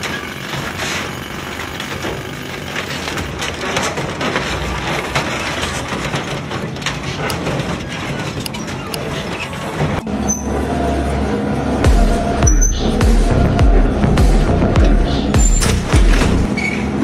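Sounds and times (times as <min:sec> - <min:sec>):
shredder blades grinding: 0:00.0 - 0:11.2
mechanical rumble: 0:00.0 - 0:17.0.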